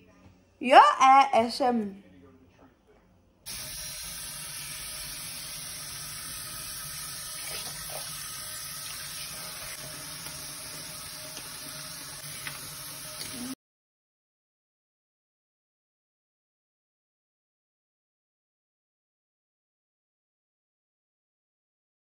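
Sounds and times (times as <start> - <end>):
tap water running into basin: 3.5 - 13.6
wet wig scrubbed and squeezed: 7.3 - 9.9.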